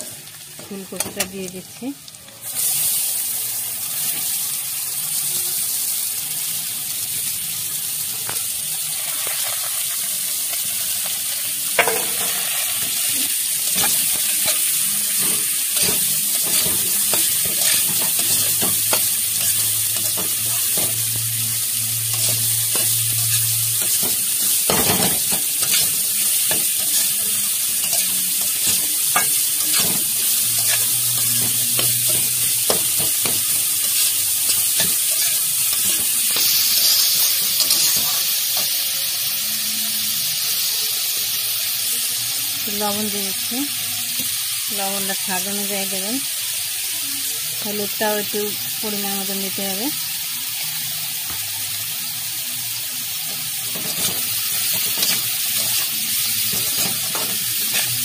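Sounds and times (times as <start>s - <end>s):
vegetables sizzling in hot oil: 0.0s - 58.0s
spatula scraping and clinking pan: 27.8s - 38.7s.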